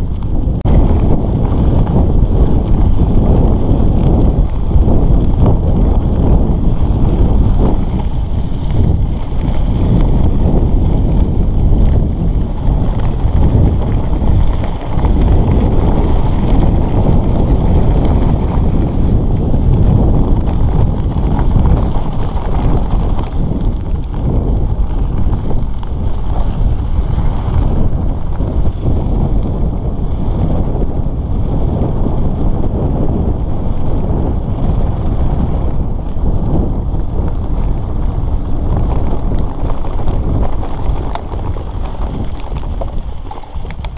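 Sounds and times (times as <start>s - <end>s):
tyres rolling over gravel: 0.0s - 32.5s, 33.2s - 43.9s
wind buffeting microphone: 0.0s - 43.9s.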